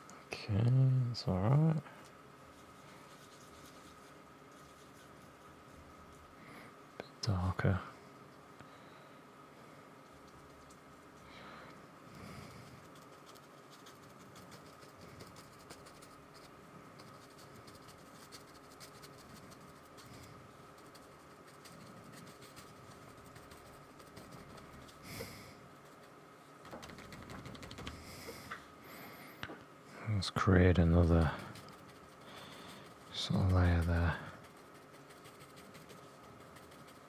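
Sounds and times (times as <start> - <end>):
brush scrape on paper: 2.5 - 6.3, 12.5 - 26.2, 30.8 - 37.0
paintbrush dabbing on paper: 2.5 - 6.4, 12.7 - 28.4, 30.8 - 37.0.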